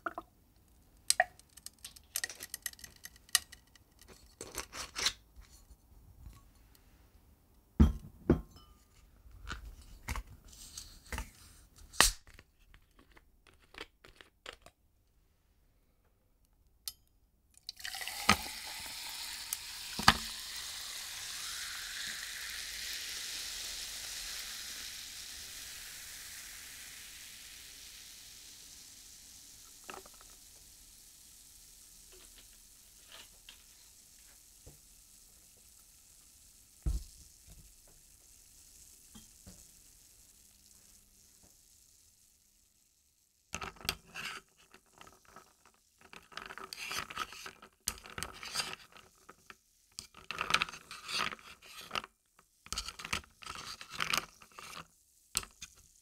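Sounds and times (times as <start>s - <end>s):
ice cubes cracking and clinking: 17.6s - 18.9s
soda water pouring into glass: 17.6s - 36.5s
soda fizzing: 17.6s - 43.2s.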